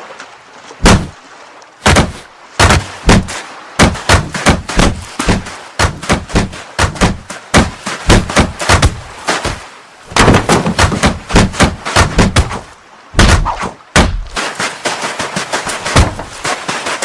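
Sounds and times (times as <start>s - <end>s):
cartoon crate crashing and tumbling: 10.1s - 12.5s.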